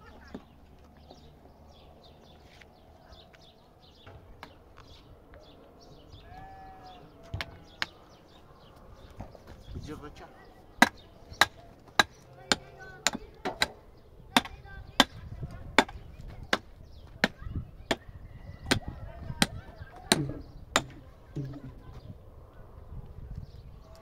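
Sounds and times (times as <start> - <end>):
hand tool striking: 19.4 - 21.7.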